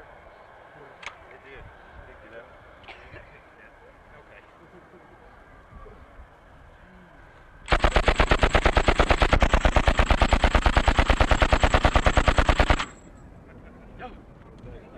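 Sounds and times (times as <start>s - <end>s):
machine gun firing continuous burst: 7.7s - 13.0s.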